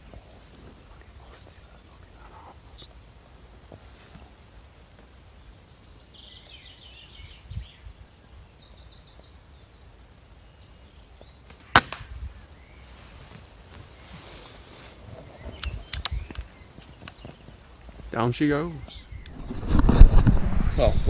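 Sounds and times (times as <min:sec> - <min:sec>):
small bird chirping: 0:00.0 - 0:03.0, 0:14.0 - 0:19.6
air rifle shot crack: 0:11.5 - 0:12.2.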